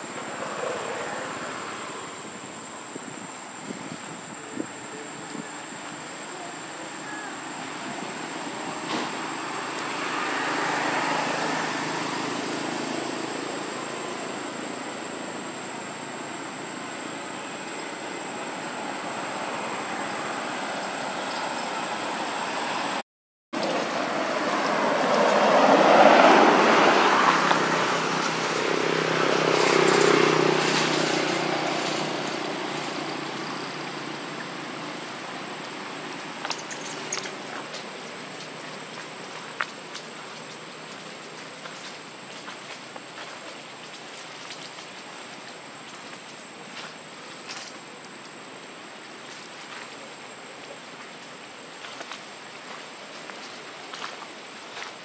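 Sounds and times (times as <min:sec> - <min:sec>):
road traffic rushing: 0:05.6 - 0:23.0, 0:23.6 - 0:43.8.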